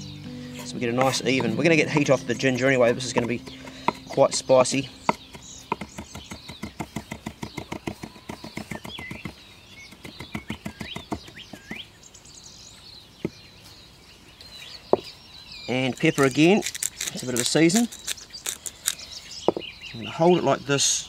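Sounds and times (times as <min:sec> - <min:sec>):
birds chirping: 0:00.0 - 0:21.0
knife chopping on wooden board: 0:02.8 - 0:11.7.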